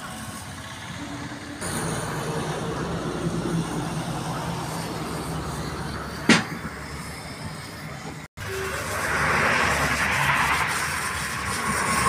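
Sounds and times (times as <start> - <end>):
truck passing: 0.0 - 12.0
sharp loud knock: 6.3 - 6.7.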